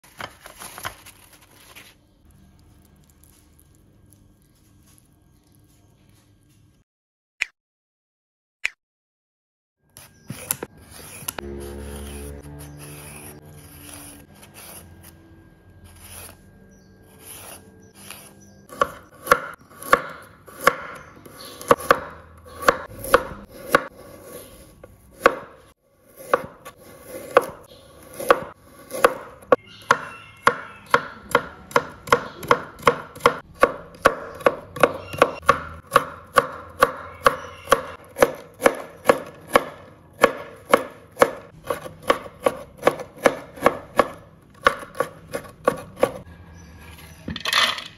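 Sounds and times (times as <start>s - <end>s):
knife chopping on wooden board: 17.2s - 46.2s.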